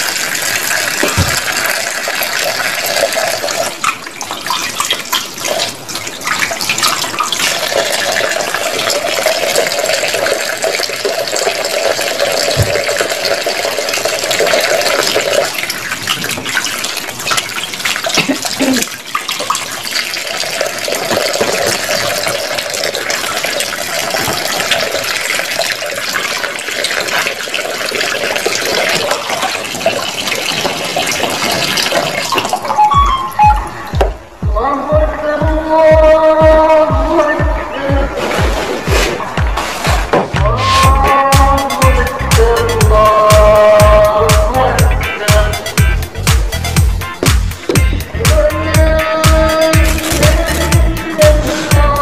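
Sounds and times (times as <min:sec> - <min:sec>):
tap water splashing in sink: 0:00.0 - 0:34.4, 0:47.1 - 0:48.4
hands rubbing fruit under water: 0:38.0 - 0:41.4.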